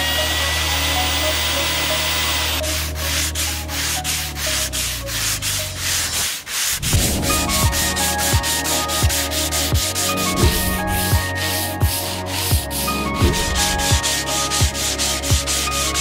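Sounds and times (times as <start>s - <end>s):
sandpaper rubbing on hardwood: 2.0s - 16.0s.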